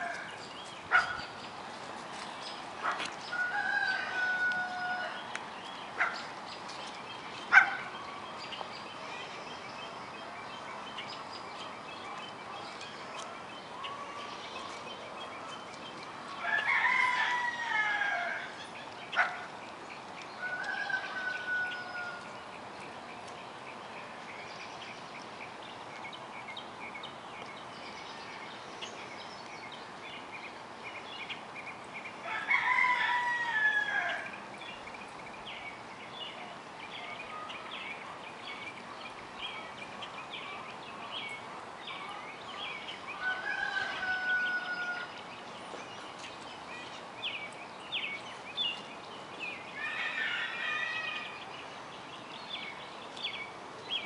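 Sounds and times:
small birds chirping: 0.0s - 54.0s
rooster crowing: 3.3s - 5.2s, 16.4s - 18.6s, 20.4s - 22.3s, 32.2s - 34.3s, 43.2s - 45.2s.

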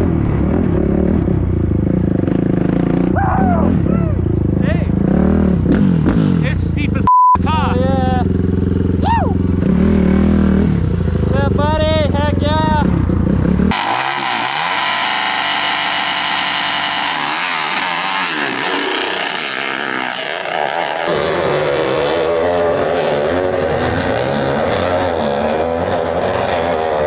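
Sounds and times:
dirt bike engines revving: 0.0s - 27.0s.

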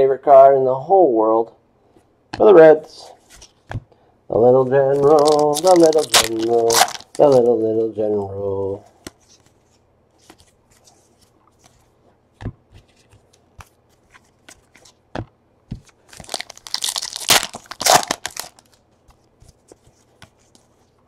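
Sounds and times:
foil wrapper tearing and crinkling: 5.0s - 7.5s, 16.1s - 18.8s.

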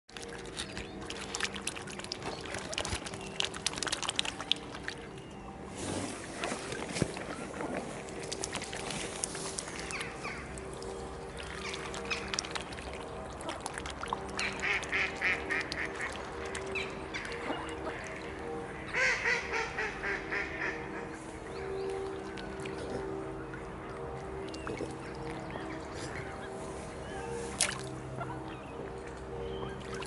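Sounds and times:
swans splashing in water: 0.1s - 21.2s, 24.0s - 30.0s
ducks quacking: 14.3s - 21.2s.

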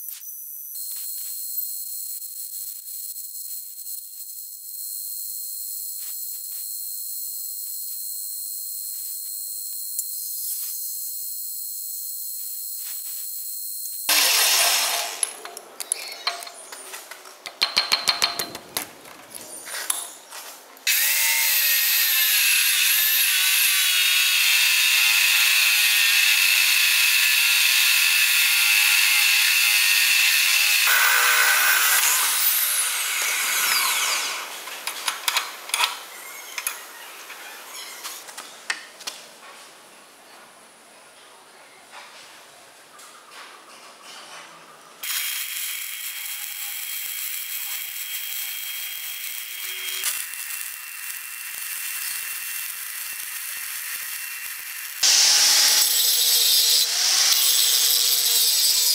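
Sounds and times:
cut-off saw grinding steel: 14.1s - 15.4s, 20.9s - 34.6s, 45.0s - 58.9s
loud irregular knocks and clatter: 17.5s - 19.0s.

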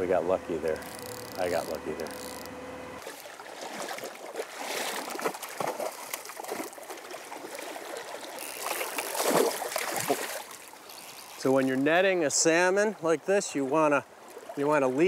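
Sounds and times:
fish splashing in water: 3.0s - 11.6s.

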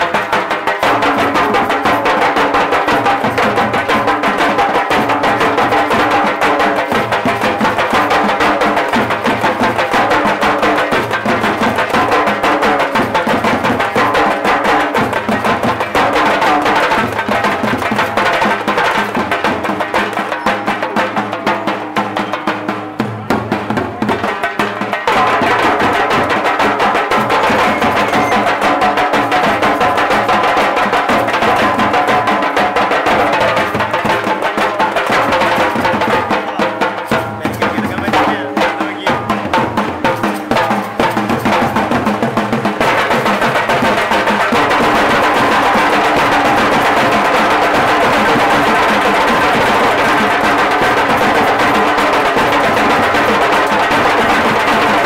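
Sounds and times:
drums beaten with sticks: 0.0s - 55.0s.

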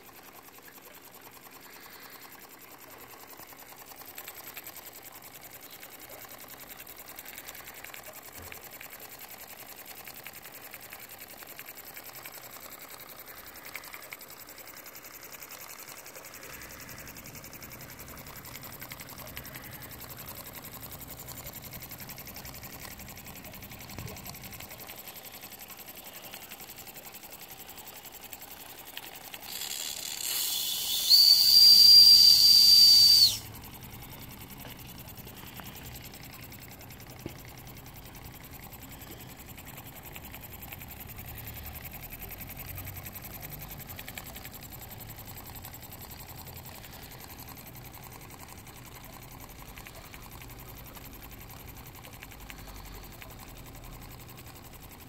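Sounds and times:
model steam engine ticking: 0.0s - 55.0s
steam hissing: 29.4s - 33.5s
high steam whistle: 29.5s - 33.5s.

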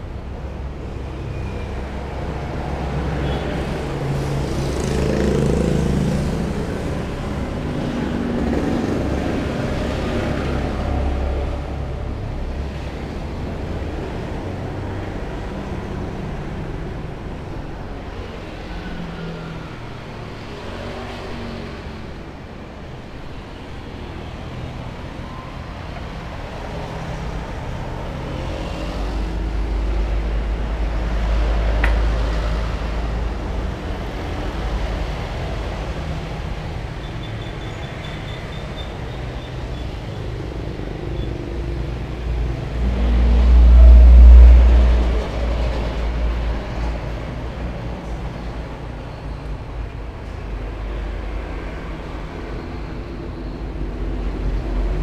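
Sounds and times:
passing traffic rumble: 0.0s - 55.0s.

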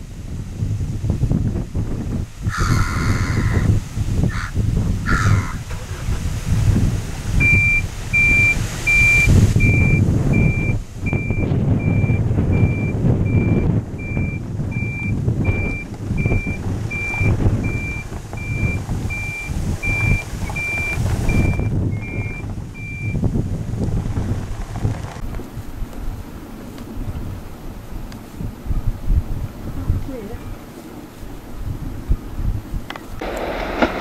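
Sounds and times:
low rumble: 4.6s - 30.6s
high warning beeps: 7.4s - 23.2s.

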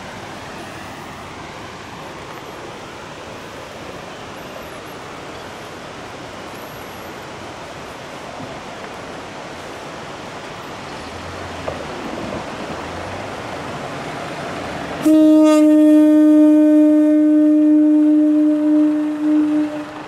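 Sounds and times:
train air horn blast: 15.0s - 20.0s.

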